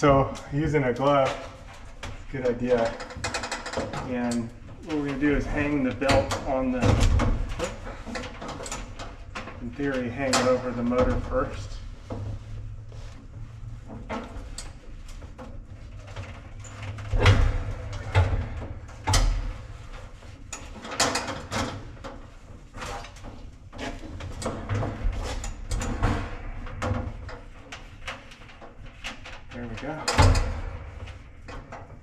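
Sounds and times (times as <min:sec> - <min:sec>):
knocks and clunks in dryer cabinet: 0:05.6 - 0:08.7, 0:17.0 - 0:19.9.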